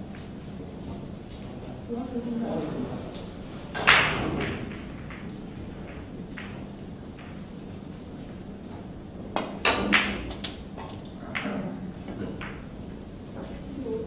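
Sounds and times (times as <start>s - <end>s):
billiard balls clacking: 3.1s - 13.6s
cue striking ball: 3.7s - 7.6s, 8.7s - 12.8s.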